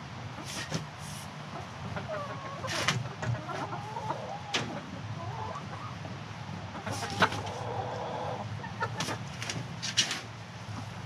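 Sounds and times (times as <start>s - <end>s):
chickens clucking: 0.3s - 10.2s
chicken drawn-out call: 6.8s - 9.2s.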